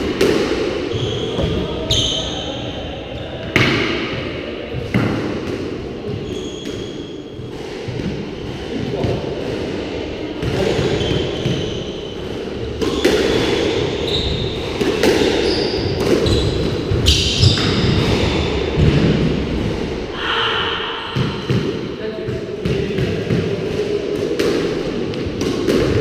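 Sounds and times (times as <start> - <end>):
squash ball smacking: 0.0 - 1.6, 12.8 - 20.0, 21.1 - 26.0
shoes squeaking on wooden floor: 0.9 - 2.2, 6.1 - 7.2, 12.9 - 14.6, 15.2 - 18.0.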